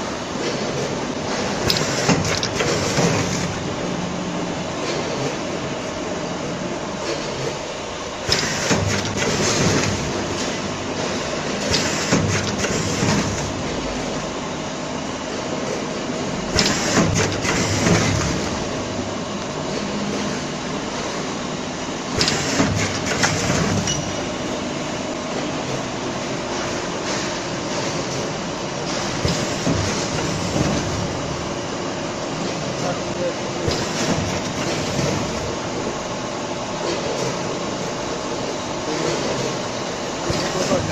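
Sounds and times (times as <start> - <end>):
packing machine humming: 0.0 - 40.9
machine clattering bursts: 1.3 - 3.6, 8.2 - 10.6, 11.6 - 13.6, 16.4 - 18.8, 22.1 - 24.1.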